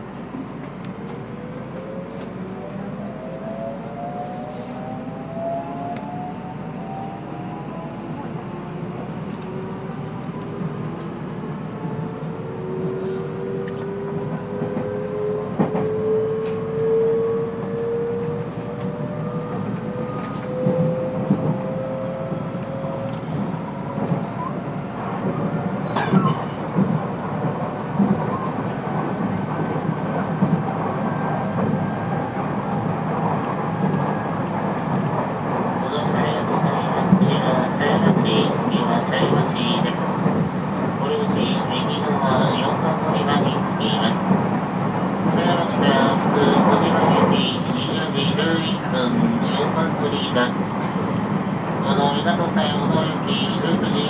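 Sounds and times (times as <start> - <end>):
train running rumble: 7.9 - 54.0.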